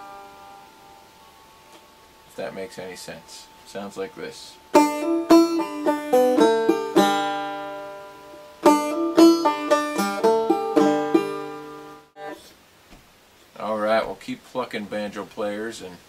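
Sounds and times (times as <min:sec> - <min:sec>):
banjo plucked notes: 0:04.6 - 0:12.4.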